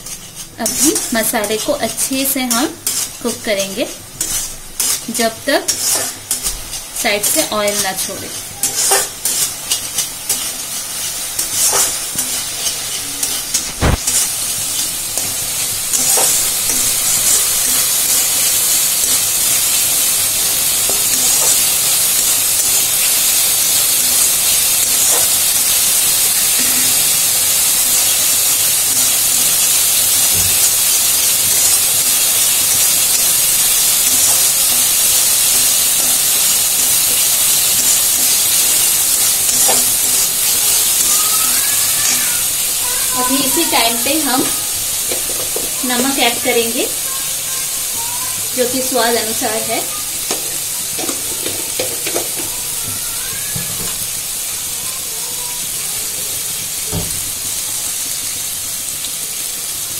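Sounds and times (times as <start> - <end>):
metal ladle scraping a pan: 0.0 - 14.4
paste sizzling in oil: 0.0 - 59.9.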